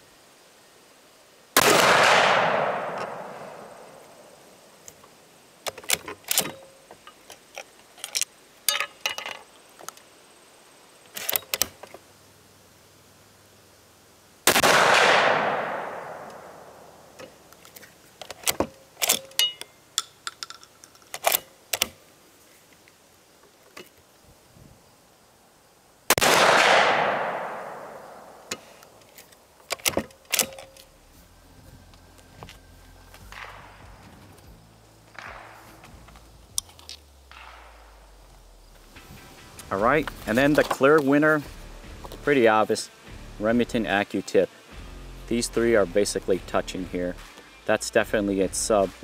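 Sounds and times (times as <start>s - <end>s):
shotgun shots: 1.6s - 4.4s, 14.5s - 17.1s, 26.1s - 28.4s, 33.3s - 34.1s, 35.1s - 35.9s, 37.3s - 38.1s.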